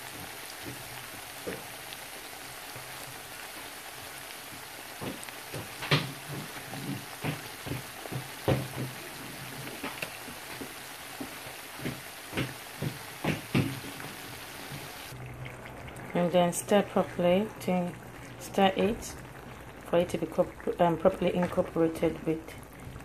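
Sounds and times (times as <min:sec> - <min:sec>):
onions sizzling in a wok: 0:00.0 - 0:15.2
wooden spoon knocking a wok: 0:04.5 - 0:14.9.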